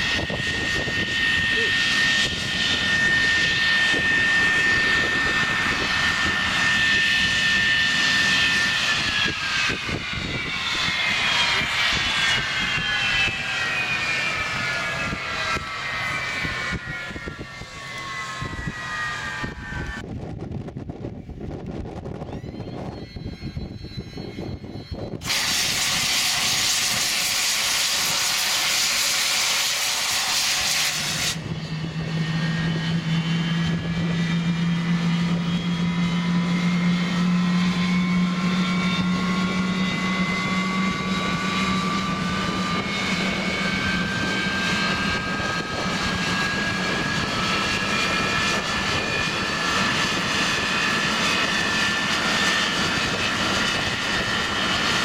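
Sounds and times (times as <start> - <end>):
jet engine spooling up: 0.0 - 55.0
jet engine starter hissing: 25.2 - 31.4.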